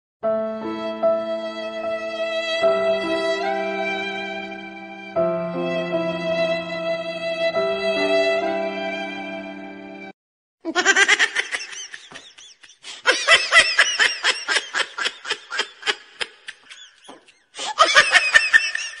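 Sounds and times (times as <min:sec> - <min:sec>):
high-pitched person giggling: 0:10.7 - 0:19.0.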